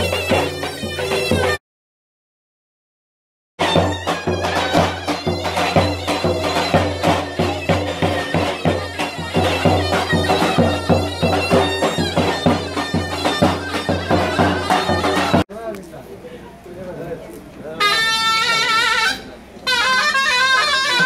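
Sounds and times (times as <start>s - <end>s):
shrill reed melody: 0.0s - 1.6s, 3.6s - 15.4s, 17.8s - 21.0s
bass drum beating: 3.6s - 15.4s.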